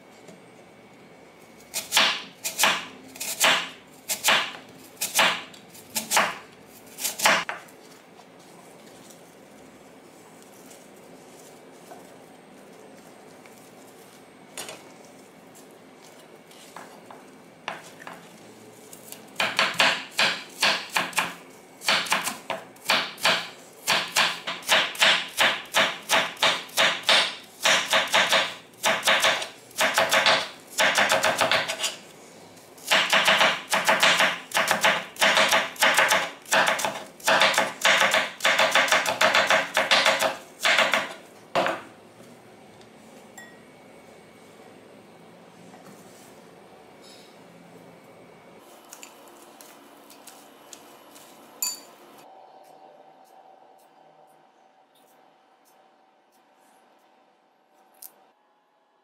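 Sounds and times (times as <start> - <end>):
knife chopping on wooden board: 1.8 - 6.4, 19.4 - 31.9, 32.9 - 41.8.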